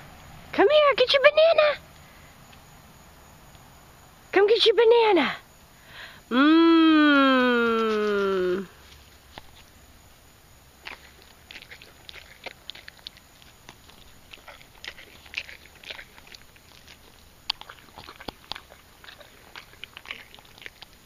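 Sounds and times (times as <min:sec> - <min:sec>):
horse chewing banana: 0:10.6 - 0:21.0.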